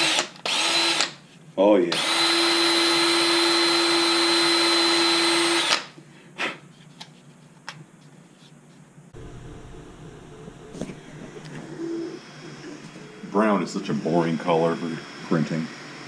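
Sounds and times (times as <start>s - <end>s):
cordless drill running: 0.0s - 1.2s, 1.9s - 5.9s.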